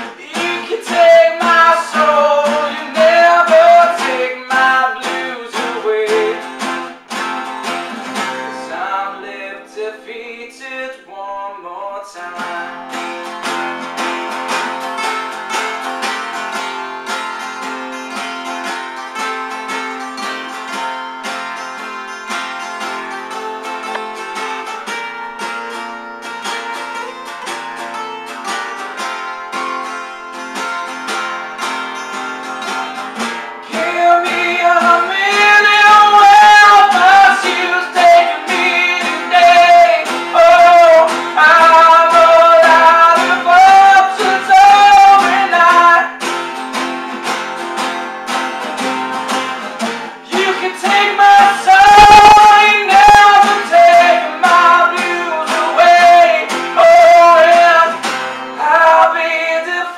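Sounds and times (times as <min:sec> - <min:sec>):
man singing loudly: 0:00.0 - 0:06.6, 0:08.5 - 0:12.9, 0:33.6 - 0:46.2, 0:50.2 - 0:59.9
acoustic guitars playing: 0:00.0 - 0:59.9.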